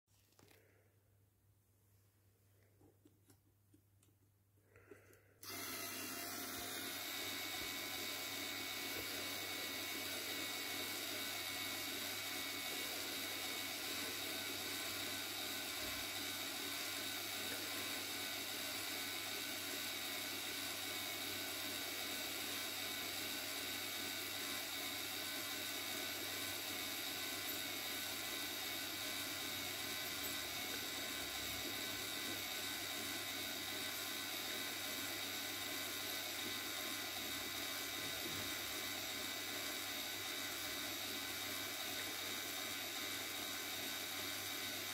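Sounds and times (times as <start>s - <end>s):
toy motor and gears whirring: 25.8s - 44.9s.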